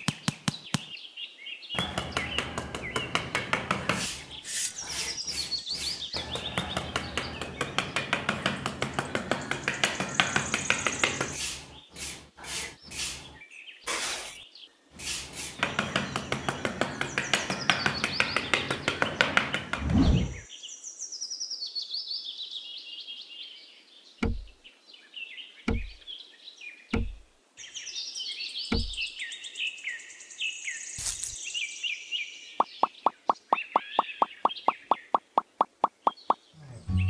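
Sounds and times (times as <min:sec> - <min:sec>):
birds chirping: 0:00.0 - 0:37.0
metal trowel scraping sand: 0:01.8 - 0:07.4, 0:11.1 - 0:14.4, 0:31.0 - 0:31.4.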